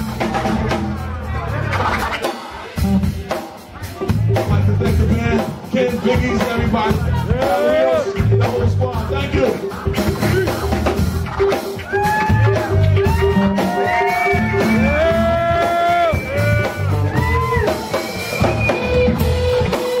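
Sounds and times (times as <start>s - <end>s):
bass guitar: 0.0s - 20.0s
drum kit: 0.0s - 20.0s
sliding melody line: 4.1s - 20.0s.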